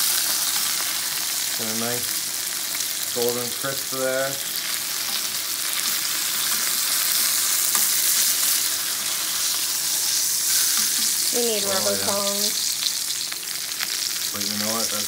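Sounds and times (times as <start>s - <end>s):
fish sizzling in frying pan: 0.0s - 15.0s
metal tongs scraping pan: 5.0s - 12.0s.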